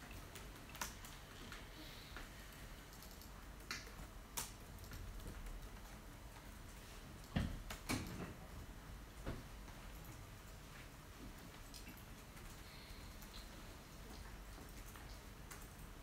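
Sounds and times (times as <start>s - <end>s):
computer keys clicking: 0.0s - 1.6s, 2.9s - 6.5s, 14.6s - 16.0s.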